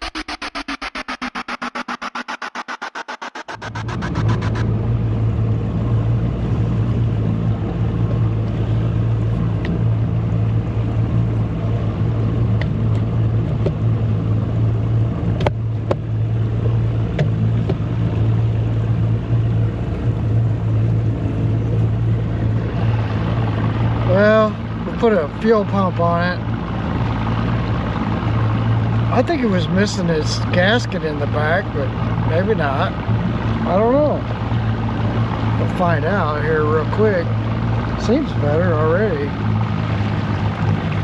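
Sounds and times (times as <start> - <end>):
outboard motor idling: 0.0 - 41.0.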